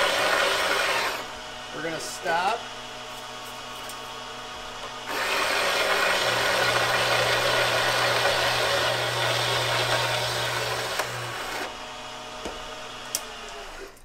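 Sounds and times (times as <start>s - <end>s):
hole saw cutting metal: 0.0s - 1.3s, 5.0s - 11.7s
drill press motor hum: 0.0s - 2.5s, 4.4s - 14.0s.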